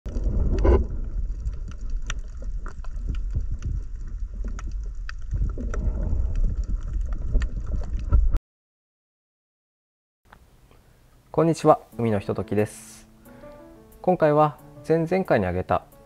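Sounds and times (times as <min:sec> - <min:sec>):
underwater rumble: 0:00.1 - 0:08.4
underwater thud: 0:00.1 - 0:08.4.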